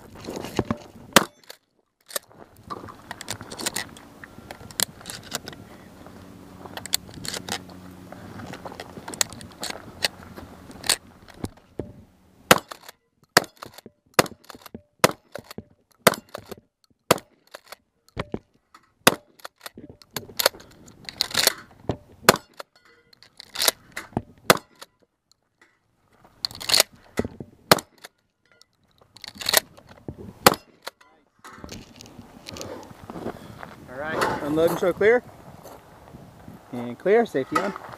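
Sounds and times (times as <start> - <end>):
shotgun shots: 12.5 - 15.4, 19.0 - 19.3.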